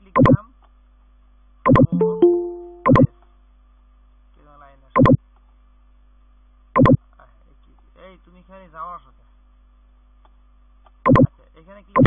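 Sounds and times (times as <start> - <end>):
two-note electronic chime: 1.7 - 3.1.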